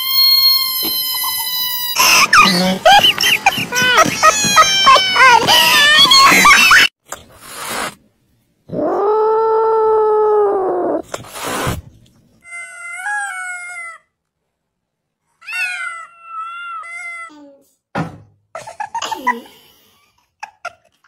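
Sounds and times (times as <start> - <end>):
cat yowling: 15.4 - 17.3.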